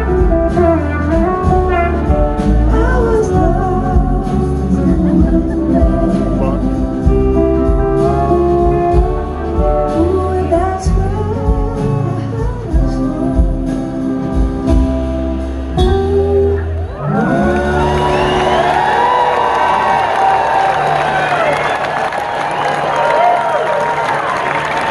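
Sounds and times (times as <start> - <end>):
live rock band: 0.0 - 24.9
crowd cheering and whooping: 16.8 - 24.9.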